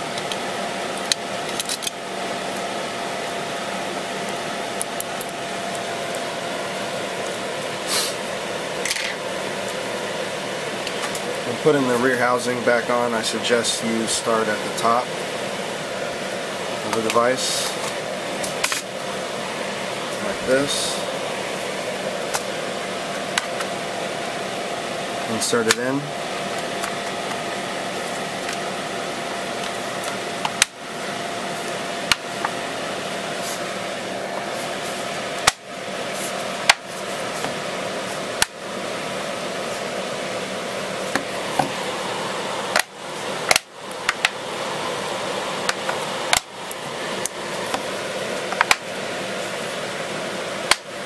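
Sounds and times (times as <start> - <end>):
steady background hum: 0.0 - 51.0.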